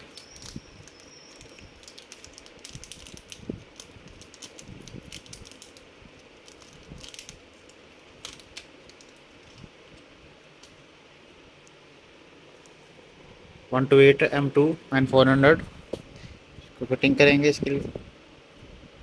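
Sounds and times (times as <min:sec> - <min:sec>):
foil bag crinkling: 0:00.0 - 0:10.1.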